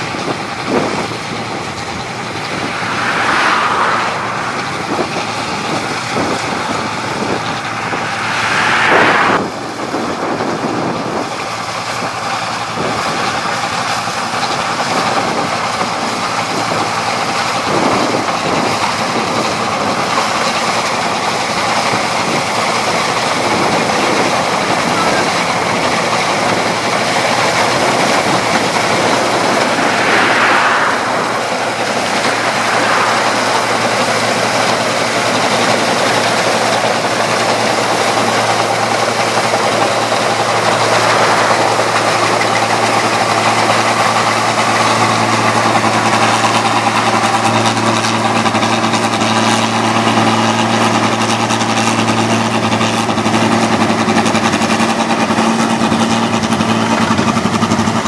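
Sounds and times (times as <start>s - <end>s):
combine harvester engine humming: 0.0s - 58.0s.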